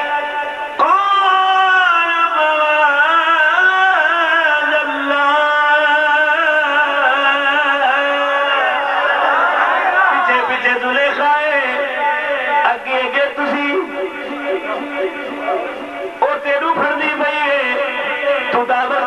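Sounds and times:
man chanting with long notes: 10.0s - 19.0s.

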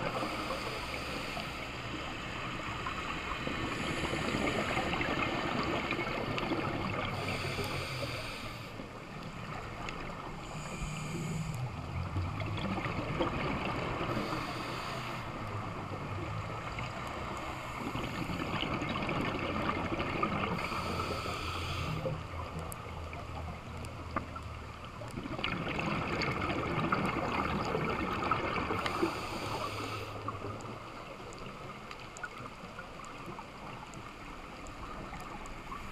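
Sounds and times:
regulator inhalation hissing: 7.2s - 8.7s, 14.1s - 15.3s, 20.6s - 22.1s, 28.8s - 30.2s.

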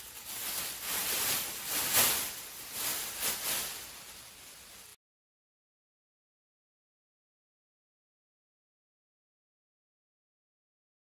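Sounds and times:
metal-coated sheet crinkling: 0.0s - 5.0s.

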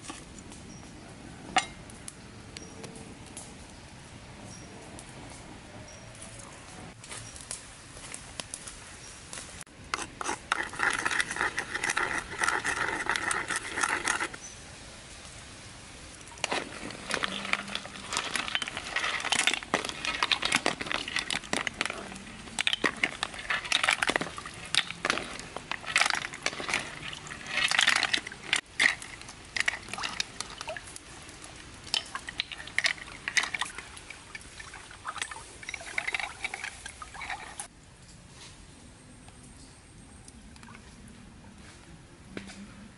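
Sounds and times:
fire crackling: 1.6s - 5.6s, 6.7s - 39.6s
water boiling and bubbling: 9.9s - 14.4s, 15.9s - 37.7s
water pouring and splashing: 10.2s - 14.4s, 16.1s - 37.7s.

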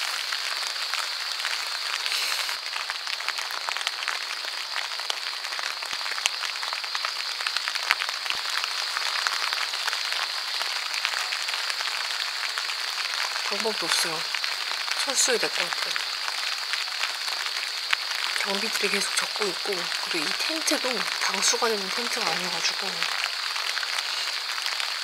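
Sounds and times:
rain on a tent: 0.0s - 25.0s.

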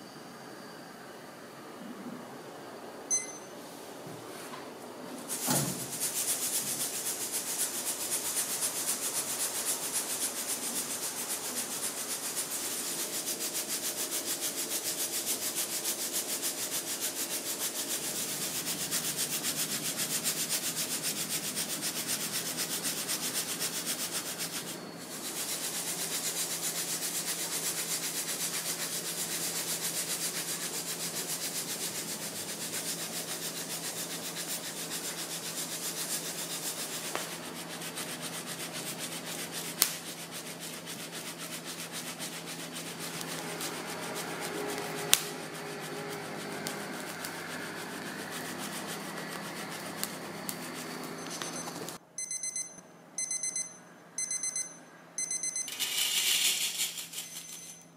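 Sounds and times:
coffee beans rattling in strainer: 55.7s - 57.5s.

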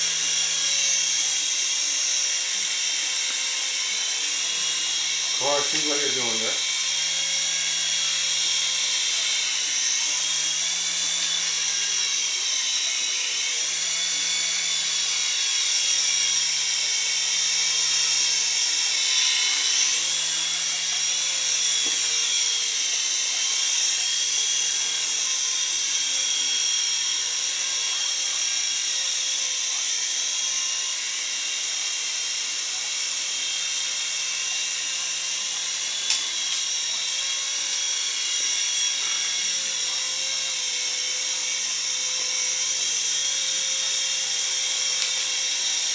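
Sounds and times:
toy helicopter motor whine: 0.0s - 45.9s.

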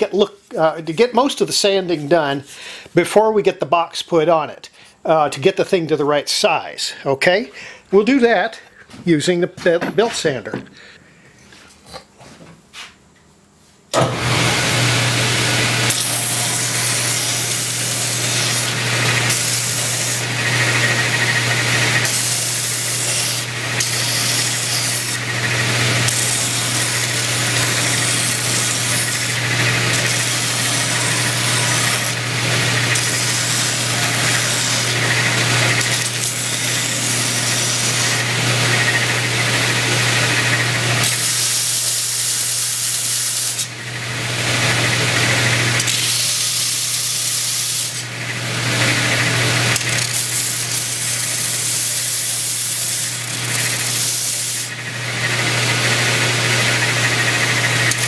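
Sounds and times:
belt sander motor running: 14.0s - 58.0s
wood sanding: 14.2s - 43.7s, 48.6s - 58.0s.

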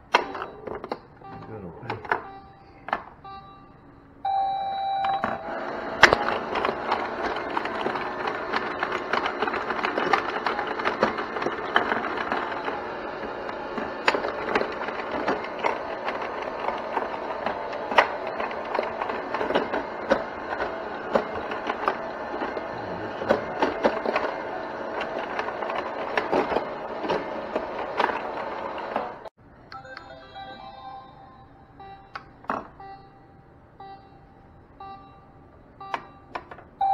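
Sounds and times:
plastic clicks of pinball flippers: 0.0s - 3.1s, 5.0s - 29.3s
electronic game sounds: 0.2s - 14.8s, 29.7s - 36.9s.

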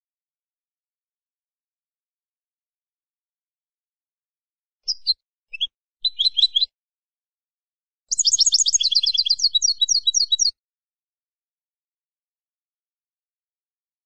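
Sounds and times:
goldfinch singing: 4.9s - 6.7s, 8.1s - 10.6s.

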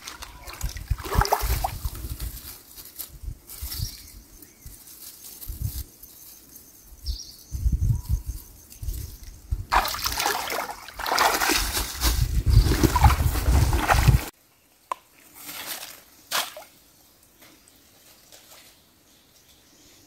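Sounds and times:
person wading through water: 0.0s - 1.9s, 9.7s - 14.3s
stream water splashing: 0.0s - 1.9s, 9.7s - 14.3s.

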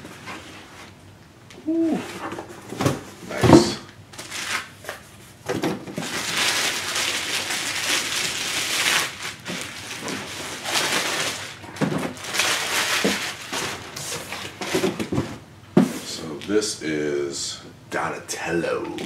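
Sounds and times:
plastic sleeve crinkling: 6.0s - 14.6s.

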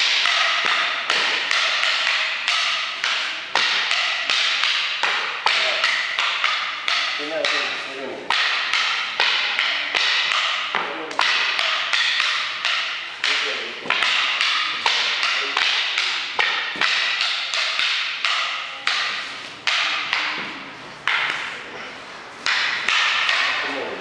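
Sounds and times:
wooden sticks clacking: 0.0s - 24.0s.

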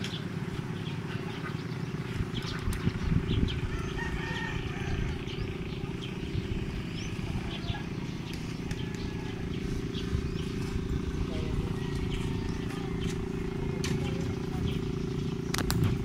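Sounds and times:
low rumble: 2.0s - 16.0s
distant rooster crowing: 3.6s - 5.7s, 7.5s - 13.8s.

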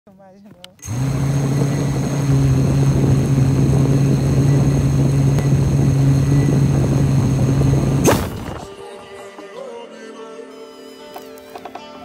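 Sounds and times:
quadcopter motors buzzing: 0.8s - 8.8s.

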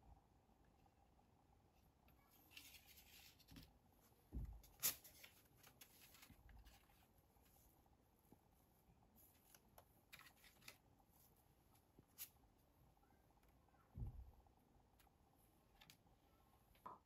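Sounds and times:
paper rustling and sliding: 4.6s - 7.6s.

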